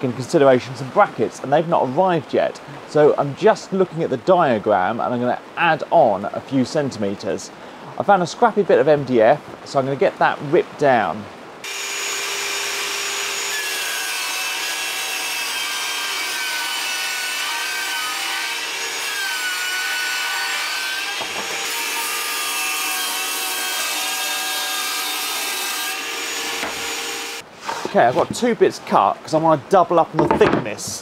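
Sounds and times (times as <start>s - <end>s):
table saw motor and blade whine: 11.6s - 27.4s.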